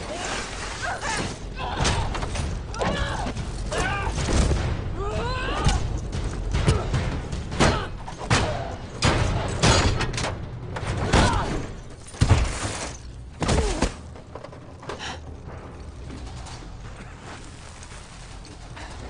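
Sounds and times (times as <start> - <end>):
people grunting and crying out: 0.0 - 9.0, 11.0 - 11.8.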